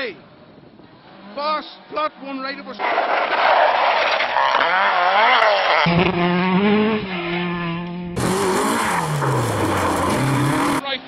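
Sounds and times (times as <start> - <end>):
rally car engine at high revs: 0.8 - 10.9.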